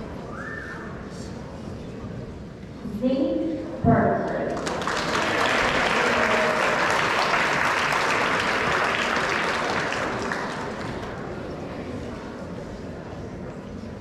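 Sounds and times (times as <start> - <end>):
crowd applauding: 4.4 - 11.6.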